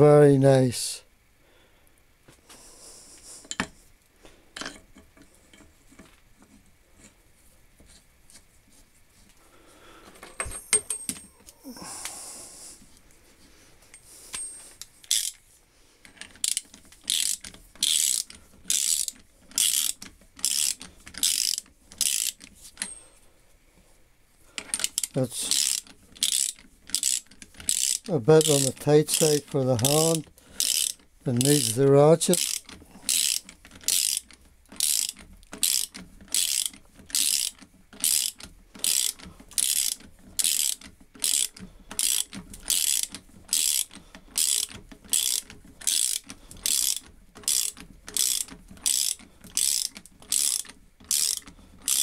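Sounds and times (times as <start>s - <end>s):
metal bolt clinking: 10.2s - 11.5s
socket ratchet clicking: 14.8s - 15.4s, 16.1s - 23.0s, 24.6s - 52.0s.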